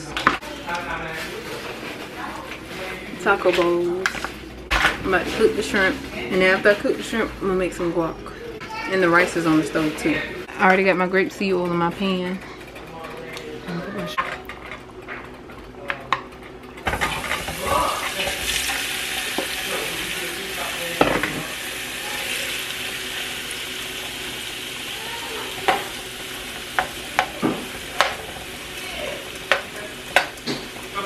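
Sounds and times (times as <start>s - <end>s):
shrimp sizzling in frying pan: 16.8s - 31.0s.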